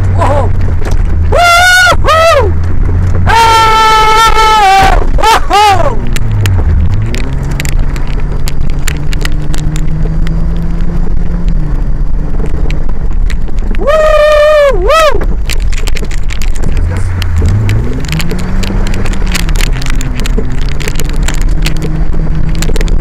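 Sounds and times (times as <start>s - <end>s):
car engine running: 0.0s - 23.0s
person shouting: 1.3s - 2.6s, 3.2s - 6.1s, 13.8s - 15.2s
knocks and rattles: 5.1s - 11.5s, 15.2s - 23.0s.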